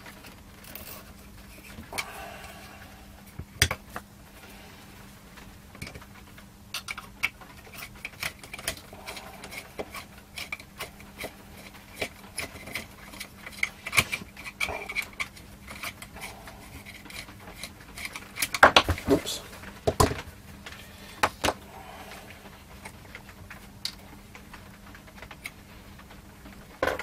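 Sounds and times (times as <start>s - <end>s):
tools clicking and scraping on metal: 6.7s - 19.3s.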